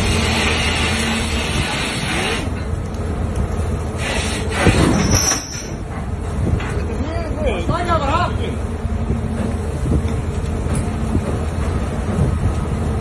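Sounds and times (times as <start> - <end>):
rushing sea water: 0.0 - 6.6
boat engine rumble: 0.0 - 13.0
wind: 0.0 - 13.0.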